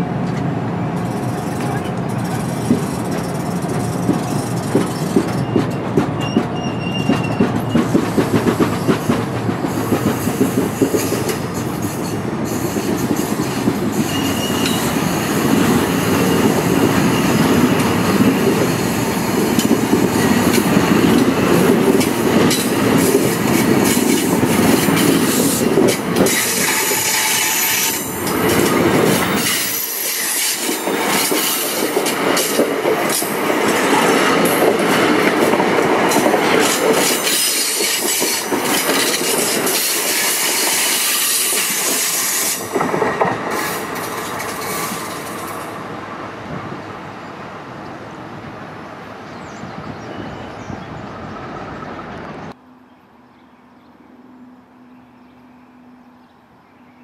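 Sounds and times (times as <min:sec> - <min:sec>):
train rumble: 0:00.0 - 0:52.6
train wheels clicking over joints: 0:00.2 - 0:45.7
high wheel squeals: 0:01.1 - 0:09.0, 0:09.7 - 0:18.1, 0:26.3 - 0:28.4.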